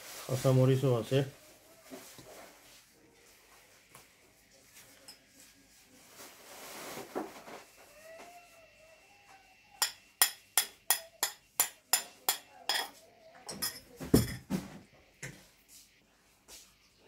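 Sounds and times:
metal spoon tapping ceramic bowl: 9.8 - 12.9.

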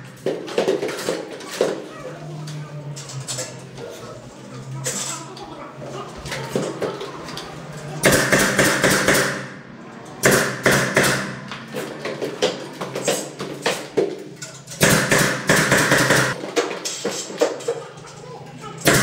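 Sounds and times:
nail gun firing with air hiss: 8.0 - 9.5, 10.2 - 11.4, 14.8 - 16.4.

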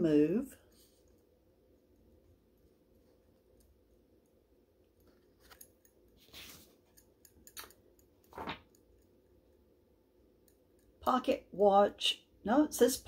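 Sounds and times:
small clicks: 6.9 - 9.2.

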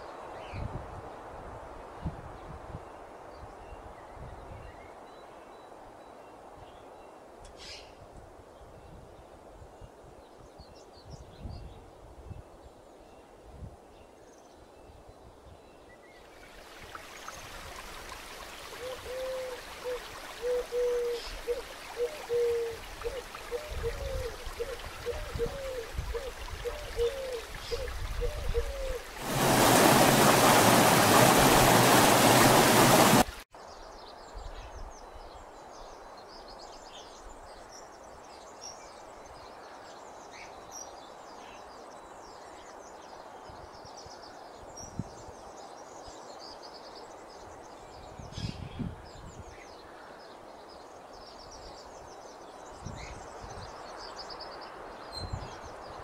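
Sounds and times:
stream rushing over rocks: 16.4 - 33.5
loud even rush: 29.1 - 33.4.

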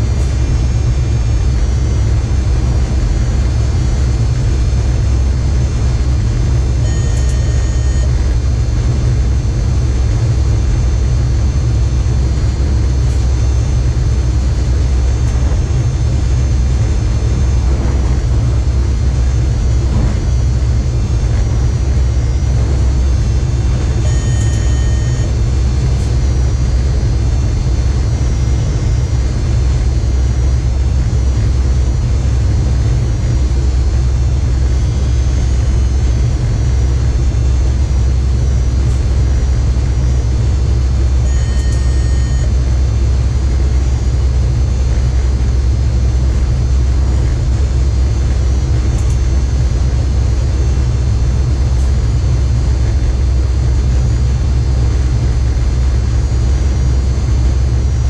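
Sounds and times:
train running low rumble: 0.0 - 58.0
short beep: 6.8 - 8.2, 22.0 - 25.4, 41.2 - 42.6.

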